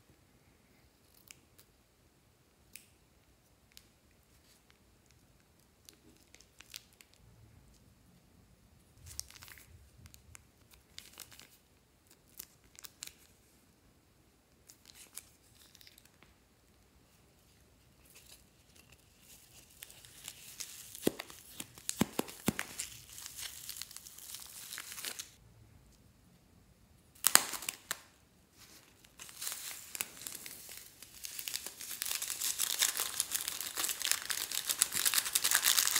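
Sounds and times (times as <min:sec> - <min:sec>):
plastic piping bags crinkling: 0:18.0 - 0:25.4, 0:27.2 - 0:35.9.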